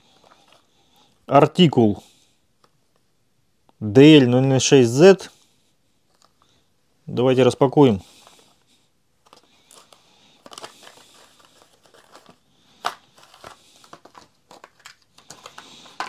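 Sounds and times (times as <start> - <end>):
plastic packaging crinkling: 0.0 - 0.7, 9.2 - 16.0.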